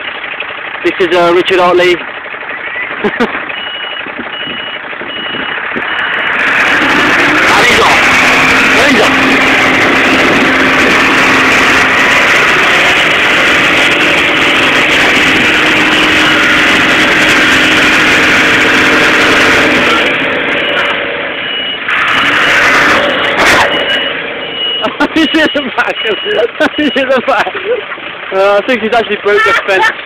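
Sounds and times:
lorry diesel engine running: 0:00.0 - 0:30.0.

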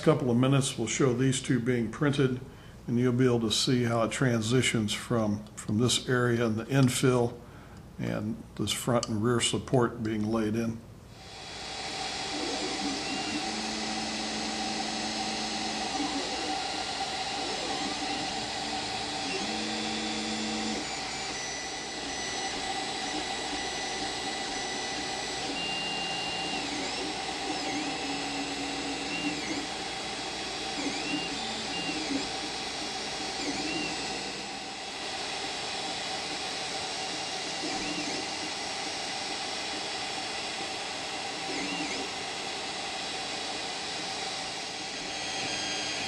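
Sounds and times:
cooling fans whirring: 0:00.0 - 0:46.0
stepper motors whining: 0:11.2 - 0:46.0.

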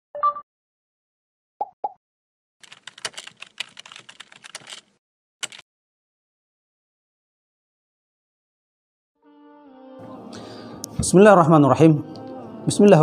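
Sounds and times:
keyboard typing: 0:02.6 - 0:05.6.

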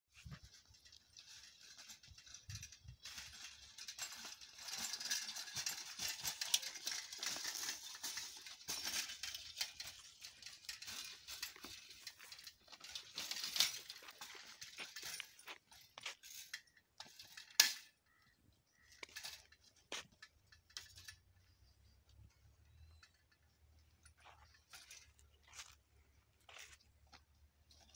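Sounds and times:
bicycle clicking and rattling: 0:00.2 - 0:27.9
bicycle clink: 0:01.2 - 0:17.9.

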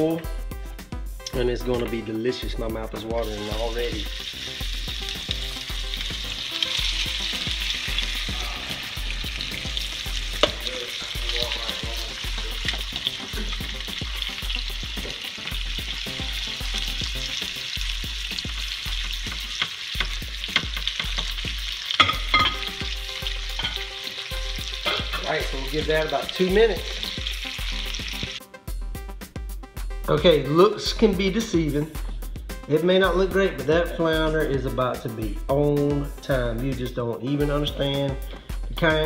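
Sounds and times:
fish sizzling in a frying pan: 0:03.2 - 0:28.4
fork clicking against pan: 0:19.3 - 0:21.3.

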